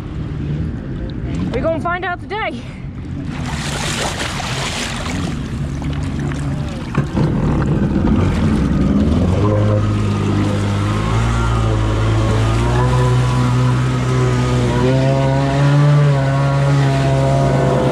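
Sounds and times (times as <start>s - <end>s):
jet ski engine running: 2.9s - 17.9s
water splashing: 3.0s - 14.6s.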